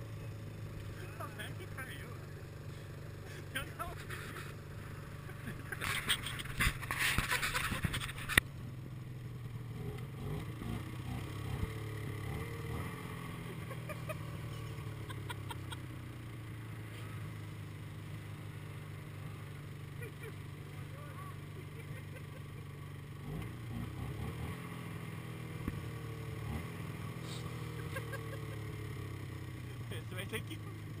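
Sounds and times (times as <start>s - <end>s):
snowmobile engine droning: 0.0s - 31.0s
loud scraping noise: 5.8s - 8.4s.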